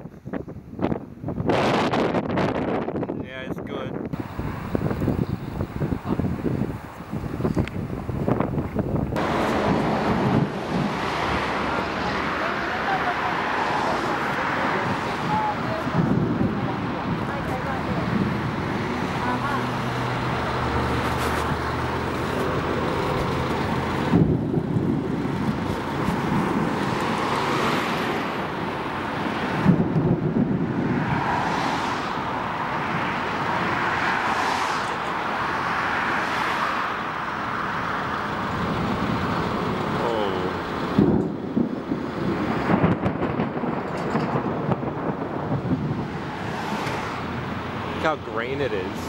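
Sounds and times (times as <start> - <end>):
thunder rumbling: 7.8 - 34.0, 38.0 - 49.0
thunder claps: 9.1 - 12.4, 13.4 - 19.7, 22.4 - 31.4, 40.8 - 48.1.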